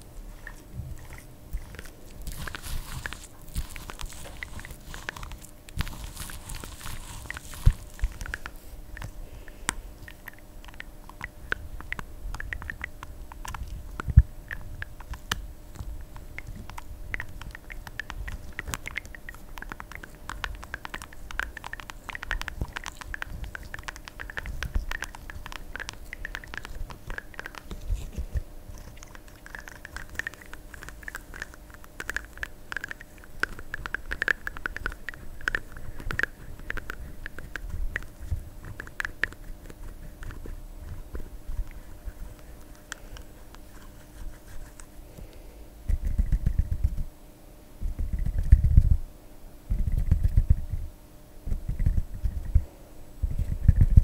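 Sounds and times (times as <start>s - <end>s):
sticky clicks of squeeze toy: 16.2s - 28.1s.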